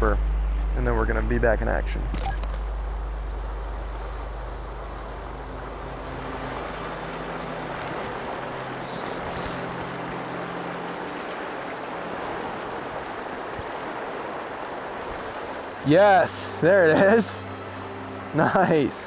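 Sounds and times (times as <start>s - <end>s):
river current rushing: 0.0s - 19.0s.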